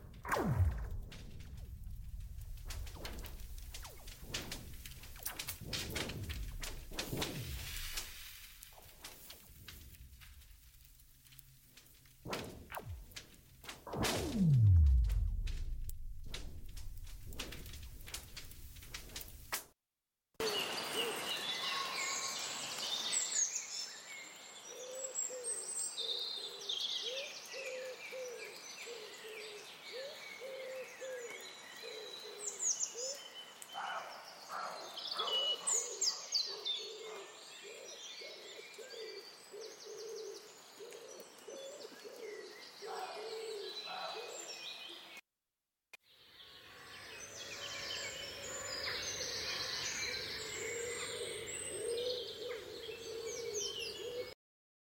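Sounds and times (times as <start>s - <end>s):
songbirds singing: 20.4s - 45.2s, 46.2s - 54.3s
low repeated bird call: 46.6s - 54.4s
woodpigeons cooing: 48.8s - 54.4s.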